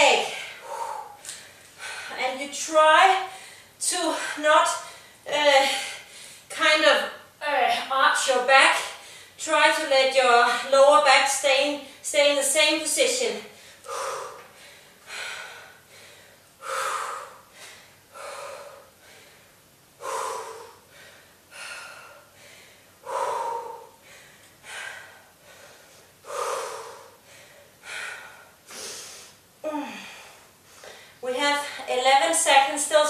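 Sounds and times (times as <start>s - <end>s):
woman breathing hard: 0.2s - 2.2s, 13.5s - 31.8s.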